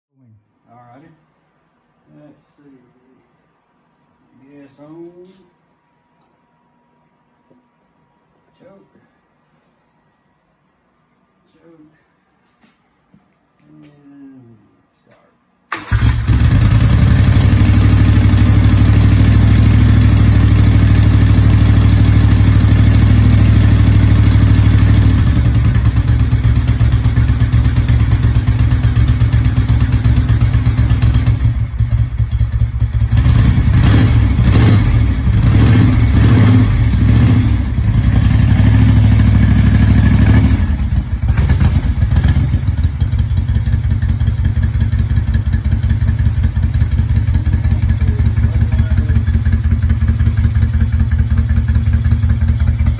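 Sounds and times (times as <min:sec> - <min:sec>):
motorcycle engine idling: 0:15.8 - 0:52.9.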